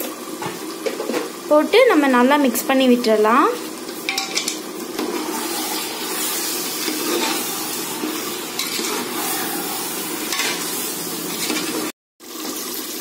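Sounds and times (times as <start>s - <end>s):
chicken sizzling in hot oil: 0.0s - 13.0s
spatula scraping pot: 4.1s - 11.9s.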